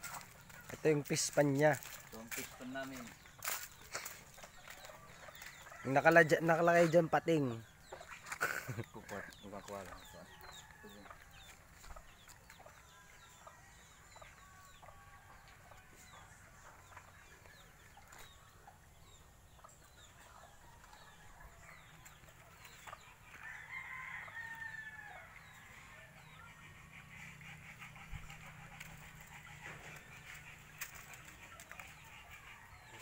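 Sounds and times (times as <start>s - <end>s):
chickens chirping: 0.0s - 33.0s
rooster crowing: 23.3s - 25.4s.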